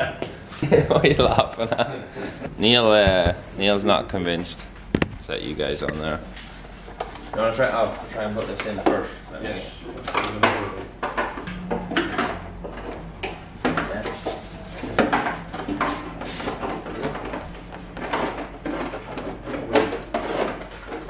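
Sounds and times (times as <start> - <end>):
plastic fairing knocks and rattles: 2.6 - 3.5.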